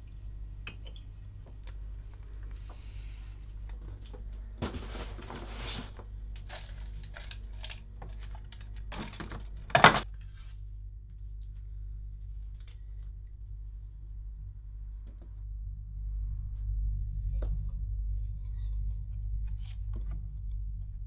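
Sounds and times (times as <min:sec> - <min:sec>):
steady low hum: 0:00.0 - 0:21.0
objects clicking and clattering: 0:03.7 - 0:10.1.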